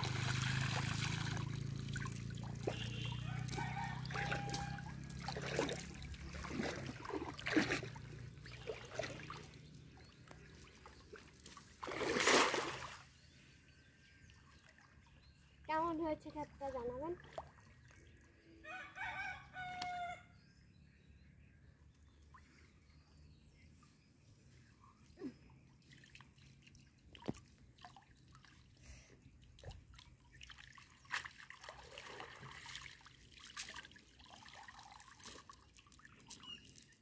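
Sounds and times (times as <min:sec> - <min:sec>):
water splashing and dripping: 0:00.0 - 0:13.0, 0:25.9 - 0:28.7, 0:29.5 - 0:37.0
rooster crowing: 0:03.2 - 0:05.0, 0:18.6 - 0:20.4.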